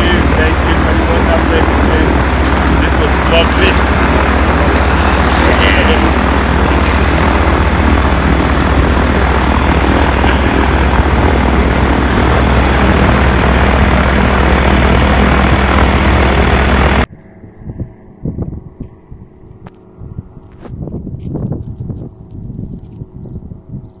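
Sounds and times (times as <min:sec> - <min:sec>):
microlight engine and propeller drone: 0:00.0 - 0:24.0.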